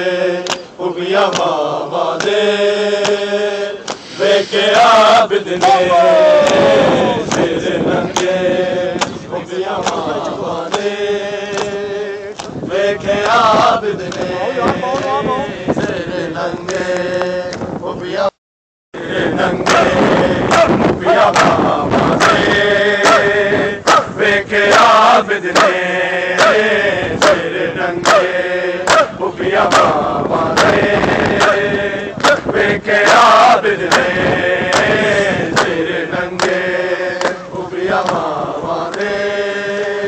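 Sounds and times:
crowd of men chanting: 0:00.0 - 0:18.3, 0:19.0 - 0:40.0
open-hand slaps on chests: 0:00.4 - 0:01.6, 0:02.2 - 0:02.4, 0:03.0 - 0:03.2, 0:03.8 - 0:04.1, 0:06.4 - 0:07.5, 0:08.1 - 0:08.4, 0:09.0 - 0:09.2, 0:09.8 - 0:10.9, 0:11.5 - 0:12.6, 0:14.1 - 0:14.3, 0:23.8 - 0:24.1, 0:25.5 - 0:25.8, 0:27.2 - 0:27.4, 0:28.0 - 0:31.6, 0:33.9 - 0:35.8, 0:36.4 - 0:36.6, 0:37.2 - 0:38.3, 0:38.9 - 0:39.2.

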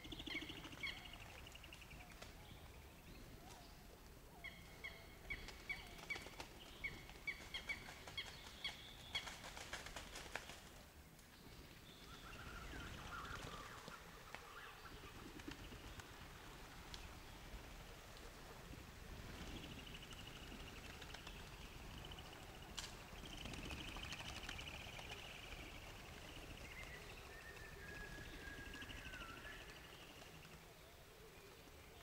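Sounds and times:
pigeon wings flapping: 0:05.4 - 0:10.8, 0:13.2 - 0:18.3, 0:20.0 - 0:27.0.

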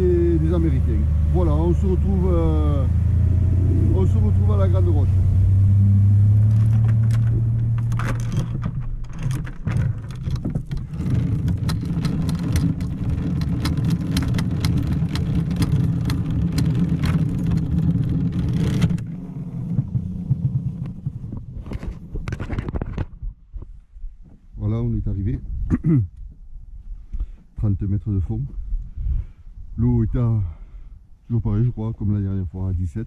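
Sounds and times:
motorboat engine drone: 0:00.0 - 0:21.5.

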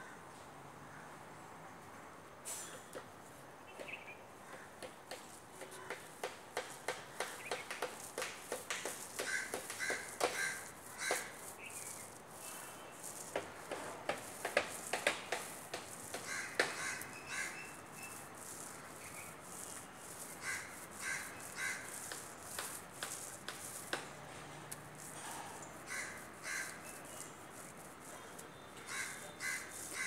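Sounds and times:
sharp knocks and scrapes: 0:04.5 - 0:30.0
crows cawing: 0:05.6 - 0:06.1, 0:08.9 - 0:11.5, 0:15.9 - 0:17.7, 0:20.4 - 0:22.0, 0:25.1 - 0:26.8, 0:28.8 - 0:30.0.

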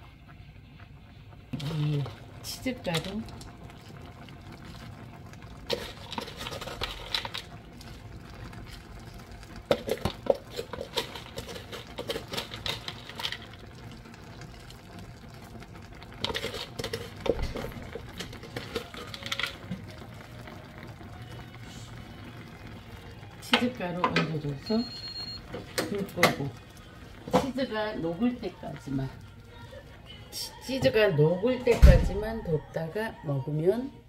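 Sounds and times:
faint bubbling: 0:00.0 - 0:12.0, 0:13.0 - 0:30.7
spoon scraping and clinking: 0:09.7 - 0:13.4.

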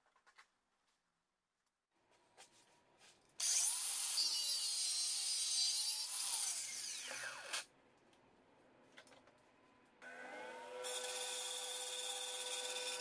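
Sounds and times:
angle grinder cutting steel rod: 0:03.4 - 0:07.7, 0:10.8 - 0:13.0.

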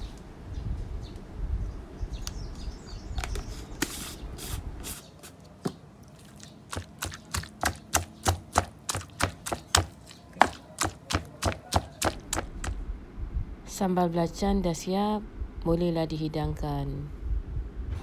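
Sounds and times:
pestle grinding in stone mortar: 0:03.8 - 0:12.8
pestle pounding: 0:06.6 - 0:12.8.

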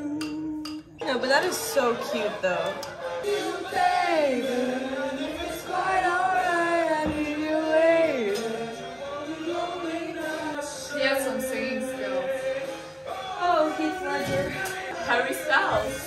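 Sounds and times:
woman singing long notes: 0:00.0 - 0:02.9.

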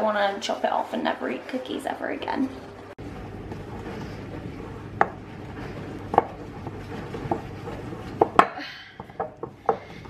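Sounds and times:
wooden spoon stirring dough: 0:03.0 - 0:10.0.

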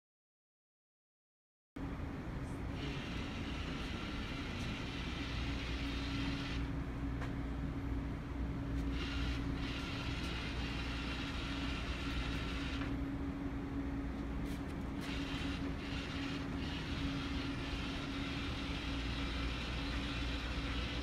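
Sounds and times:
steady low hum: 0:01.8 - 0:21.0
robot drive motors whirring: 0:02.8 - 0:06.7, 0:08.9 - 0:13.0, 0:15.0 - 0:21.0.

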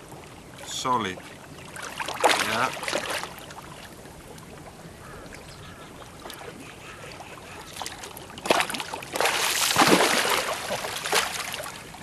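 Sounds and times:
fish thrashing splashing water: 0:01.8 - 0:03.4, 0:07.8 - 0:11.8.

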